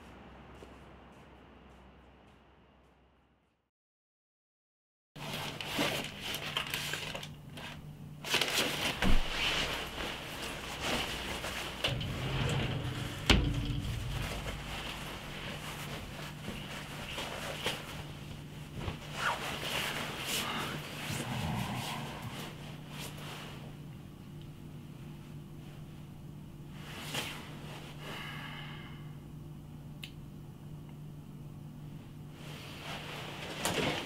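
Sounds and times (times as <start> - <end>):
steady low hum: 0.0 - 3.5, 8.9 - 33.4
sharp knocks: 11.9 - 16.4
jacket rustling: 13.9 - 20.2.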